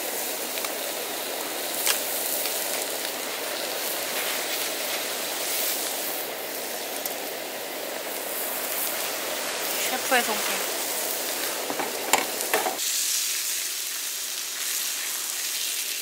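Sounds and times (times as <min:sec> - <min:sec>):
meat sizzling on a grill pan: 0:00.0 - 0:16.0.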